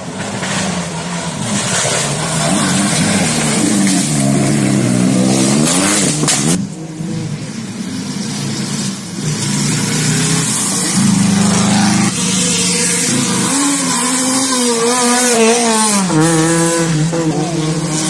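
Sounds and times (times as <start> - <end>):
rally car engines at hard throttle: 0.0 - 18.0.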